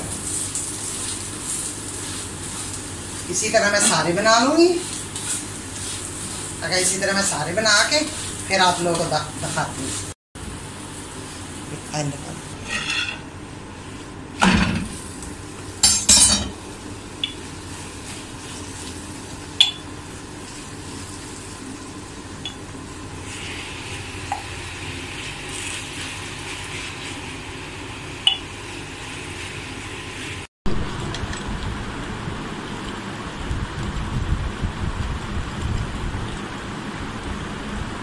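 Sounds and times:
flatbread sizzling on a griddle: 0:00.0 - 0:14.2, 0:14.9 - 0:22.4, 0:23.2 - 0:30.5
spatula clinking and scraping pan: 0:12.6 - 0:13.3.

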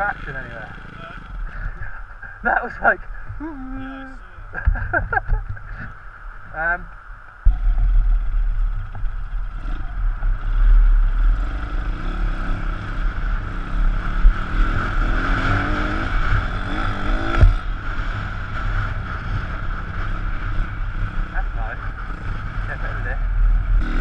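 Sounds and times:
motorbike engine revving: 0:07.5 - 0:24.0.

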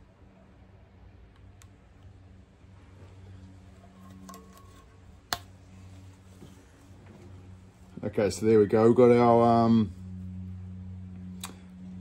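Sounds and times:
faint low hum: 0:00.0 - 0:12.0
faint metal ring: 0:03.4 - 0:05.2.

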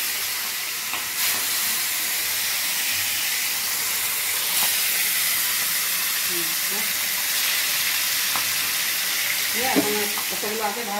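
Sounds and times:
fish frying in hot oil: 0:00.0 - 0:10.9.

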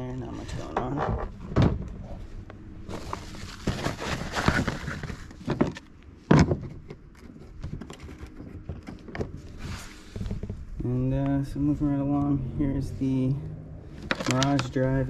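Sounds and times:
plastic cover rustling: 0:02.8 - 0:05.9.

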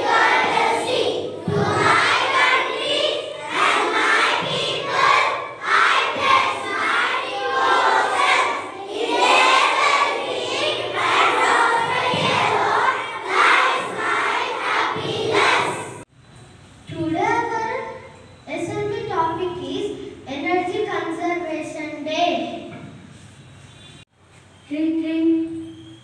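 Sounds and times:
children reciting in unison: 0:00.0 - 0:16.0.

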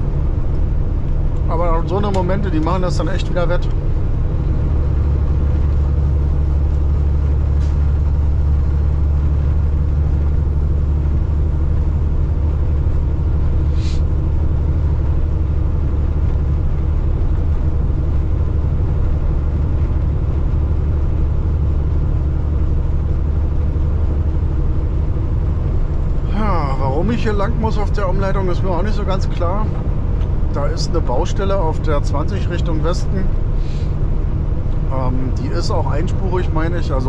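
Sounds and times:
road rumble: 0:00.0 - 0:37.0
truck diesel engine droning: 0:00.0 - 0:37.0
short hiss: 0:13.7 - 0:14.0.

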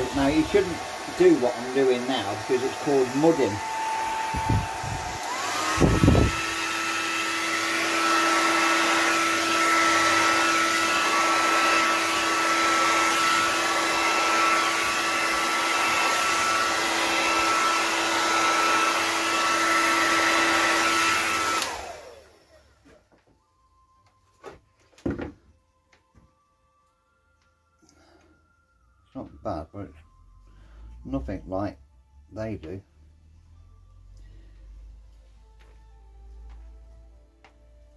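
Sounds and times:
hair dryer running: 0:00.0 - 0:23.2
hair dryer handling knocks: 0:25.0 - 0:25.4.

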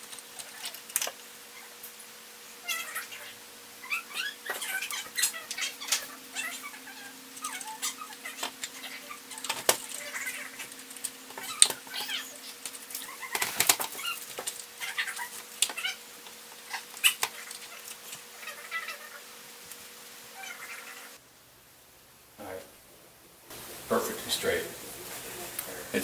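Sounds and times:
steady low hum: 0:00.0 - 0:26.0
clicks and knocks of handling: 0:10.9 - 0:14.7.

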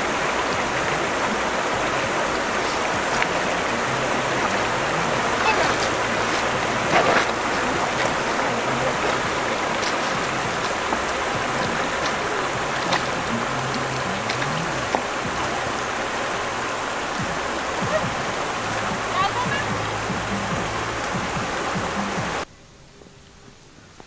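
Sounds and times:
stream water rushing: 0:00.0 - 0:22.5
stones clicking underfoot: 0:07.1 - 0:13.3.

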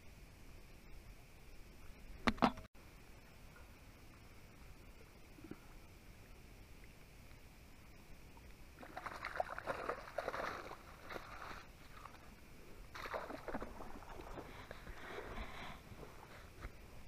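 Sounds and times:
water sloshing and splashing: 0:08.4 - 0:16.6.

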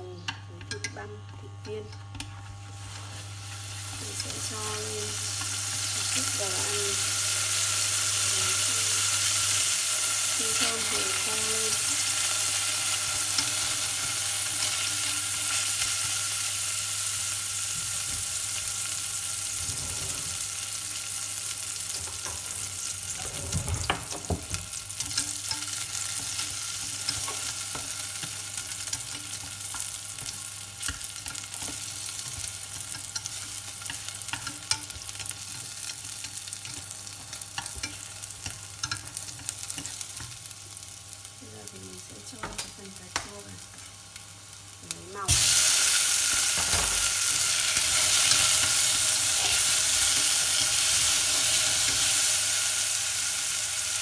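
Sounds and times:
food sizzling in oil: 0:02.6 - 0:54.0
chopsticks tapping pot: 0:23.8 - 0:40.4.

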